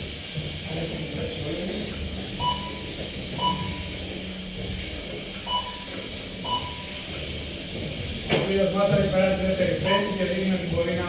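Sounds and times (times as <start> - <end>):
steady low hum: 0.0 - 11.0
short electronic beeps: 2.4 - 4.0, 5.4 - 7.1, 9.8 - 10.2.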